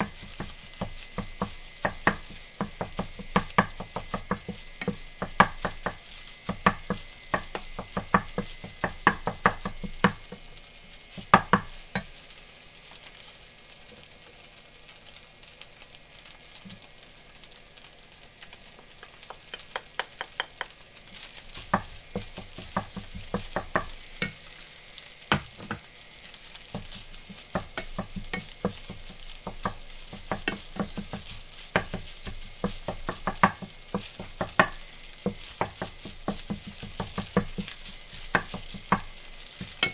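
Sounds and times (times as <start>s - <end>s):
food sizzling: 0.0s - 39.9s
spatula scraping metal frying pan: 26.6s - 39.9s.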